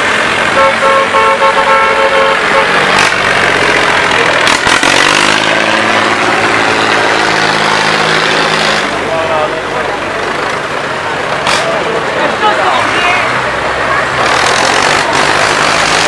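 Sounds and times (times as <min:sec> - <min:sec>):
tractor engines running: 0:00.0 - 0:16.0
horn tooting: 0:00.5 - 0:03.1.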